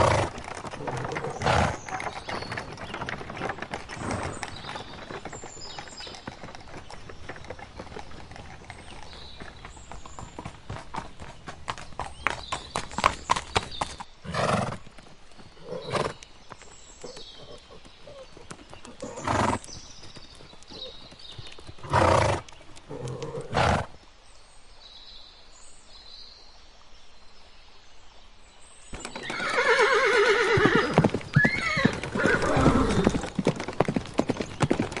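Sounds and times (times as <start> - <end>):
horse hoof clops: 0.0 - 14.1, 30.9 - 35.0
horse neighing: 29.2 - 33.2.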